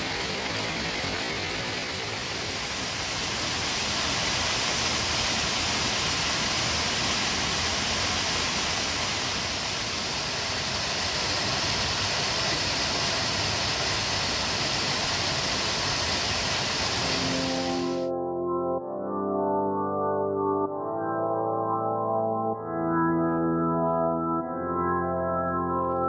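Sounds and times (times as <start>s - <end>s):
waterfall rushing: 0.0s - 18.1s.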